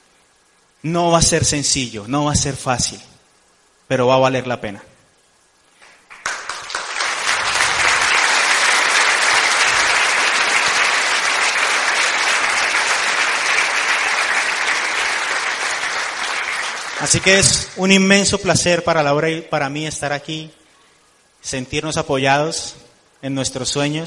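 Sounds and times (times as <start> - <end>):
audience applauding: 5.9 - 17.8.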